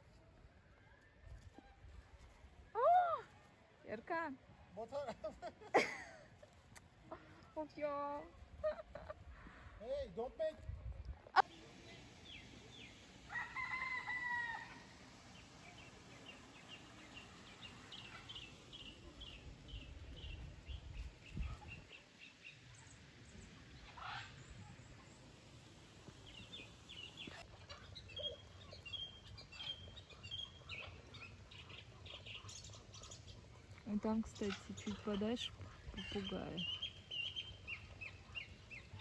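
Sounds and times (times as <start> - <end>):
rooster crowing: 13.3 - 14.9
small birds chirping: 15.4 - 25.4, 26.1 - 39.0.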